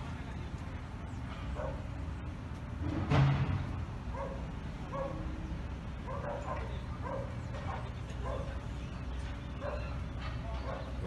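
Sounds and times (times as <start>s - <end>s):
dog yapping: 4.1s - 5.2s, 6.1s - 8.5s, 9.6s - 11.0s.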